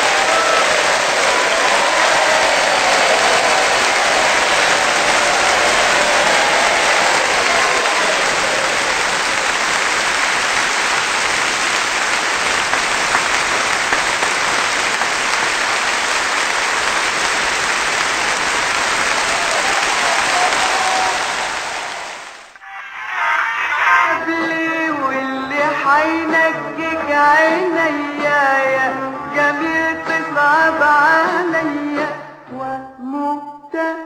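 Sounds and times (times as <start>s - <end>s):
audience applauding: 0.0s - 22.6s.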